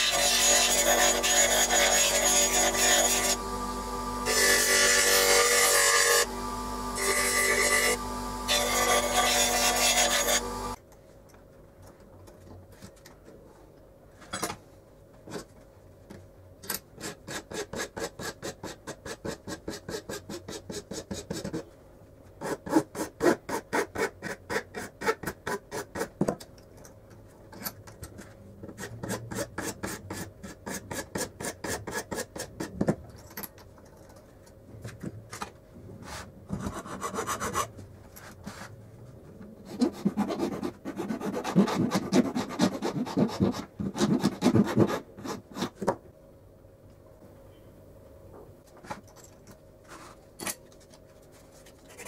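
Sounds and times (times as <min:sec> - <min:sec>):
file rasping on wood: 0:00.0 - 0:03.4, 0:07.0 - 0:10.8, 0:17.0 - 0:21.6, 0:28.8 - 0:32.7, 0:36.6 - 0:37.7, 0:39.6 - 0:45.8.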